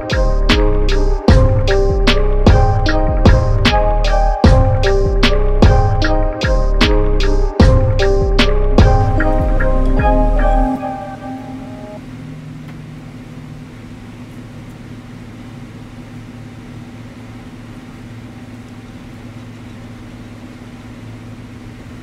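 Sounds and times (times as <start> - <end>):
mallet percussion music sting: 0.0 - 12.0
low machine hum: 0.0 - 22.0.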